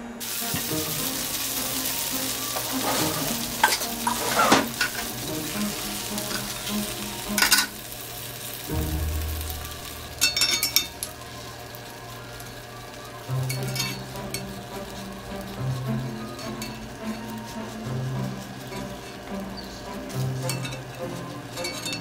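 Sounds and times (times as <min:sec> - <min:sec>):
oil sizzling in a skillet: 0:00.1 - 0:22.0
utensil scraping and knocking pan: 0:02.6 - 0:05.1
metal clinks on a pan: 0:10.2 - 0:11.1, 0:20.4 - 0:21.0, 0:21.6 - 0:22.0.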